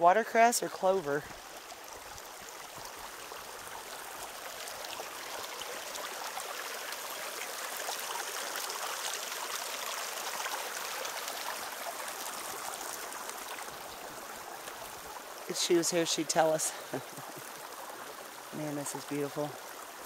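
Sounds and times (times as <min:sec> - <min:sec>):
brook trickling over rocks: 0:00.0 - 0:20.0.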